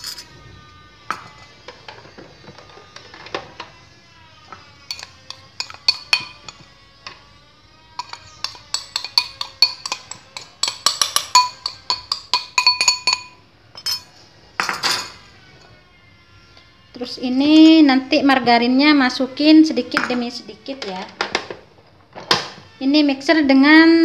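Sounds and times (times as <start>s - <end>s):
spoon clinking against glass bowl: 4.9s - 6.6s, 8.0s - 15.2s.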